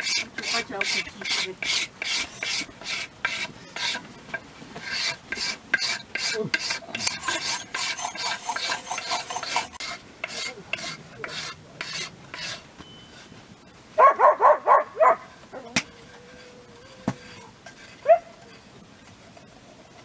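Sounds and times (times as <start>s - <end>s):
knife scraping wooden handle: 0.0s - 4.0s, 4.8s - 12.6s, 17.0s - 18.7s.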